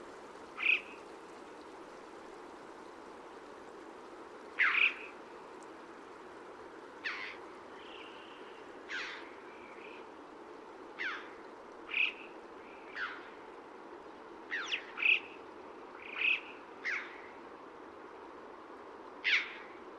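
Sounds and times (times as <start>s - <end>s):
background hiss: 0.0s - 19.9s
bird calls: 0.6s - 1.1s, 4.6s - 5.2s, 7.0s - 10.1s, 11.0s - 13.4s, 14.5s - 15.4s, 16.0s - 17.4s, 19.2s - 19.8s.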